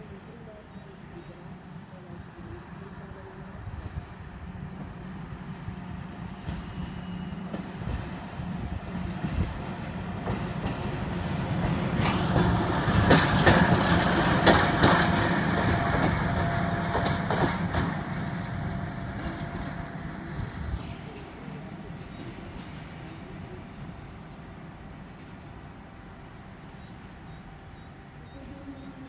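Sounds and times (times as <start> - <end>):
diesel locomotive engine drone: 0.0 - 29.0
wheels clicking over rail joints: 9.2 - 18.2.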